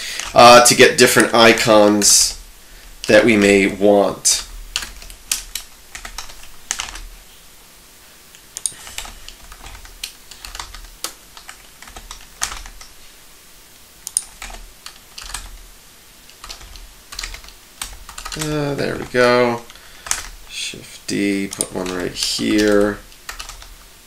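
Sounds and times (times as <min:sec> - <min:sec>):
computer keyboard keys tapping: 0:04.4 - 0:07.1, 0:08.6 - 0:13.0, 0:14.0 - 0:15.6, 0:16.3 - 0:20.5, 0:21.4 - 0:23.8.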